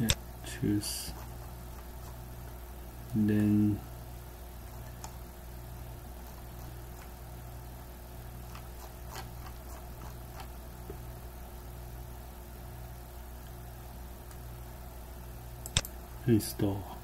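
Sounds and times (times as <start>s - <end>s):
low electrical hum: 0.0s - 17.0s
computer mouse clicks: 4.8s - 5.2s, 15.6s - 16.0s.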